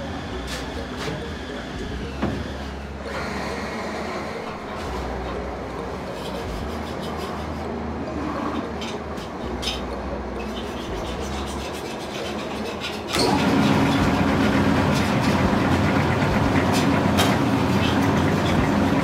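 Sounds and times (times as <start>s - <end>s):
dough roller machine humming: 10.4s - 19.0s.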